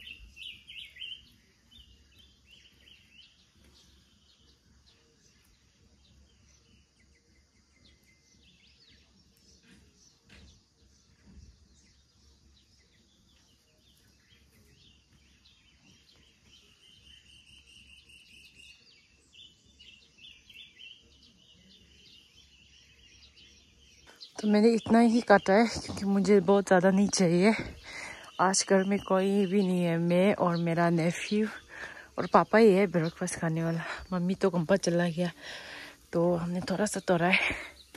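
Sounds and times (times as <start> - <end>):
faint bird chirps: 0.0 - 37.9.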